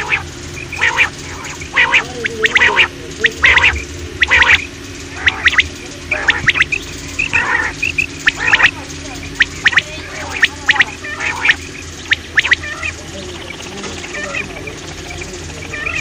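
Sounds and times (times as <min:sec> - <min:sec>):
quail calling: 0:00.0 - 0:16.0.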